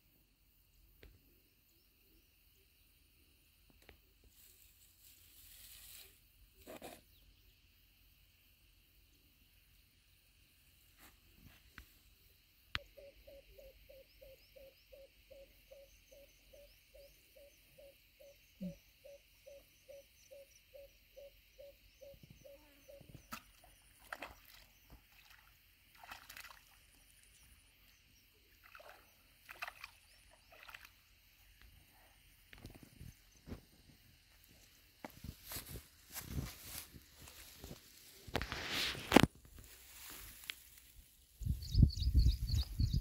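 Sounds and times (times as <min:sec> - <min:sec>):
faint high chirps: 0:12.7 - 0:25.0.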